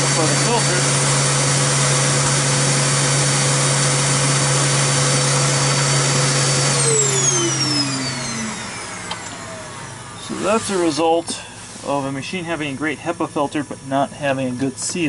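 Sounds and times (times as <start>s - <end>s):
vacuum cleaner motor: 0.0s - 12.0s.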